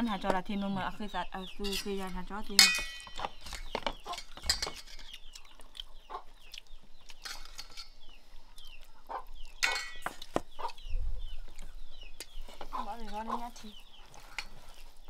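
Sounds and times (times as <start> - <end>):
chickens clucking: 0.0 - 15.0
spoon clinking steel bowl: 2.6 - 3.2.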